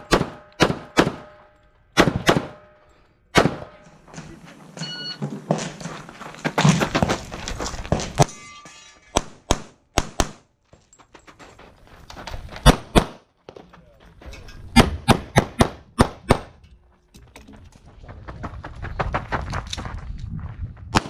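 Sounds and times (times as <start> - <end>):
pistol shots: 0.0 - 2.7, 3.3 - 3.8, 9.2 - 10.4, 14.8 - 16.5.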